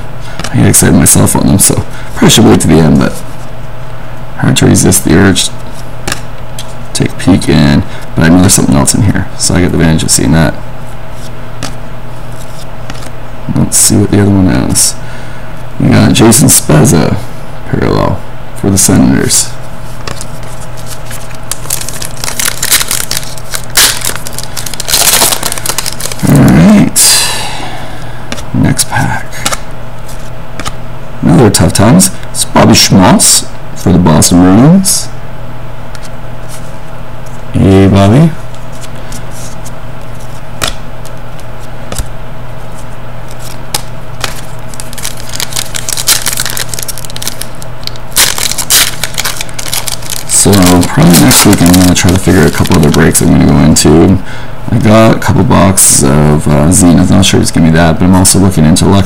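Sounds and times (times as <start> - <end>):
steady low hum: 0.0 - 59.0
foil wrapper crinkling and tearing: 20.1 - 26.6, 43.3 - 53.3
trading cards clicking and snapping: 21.1 - 26.5, 29.4 - 29.6, 30.6 - 30.8, 40.6 - 42.1, 43.3 - 53.0.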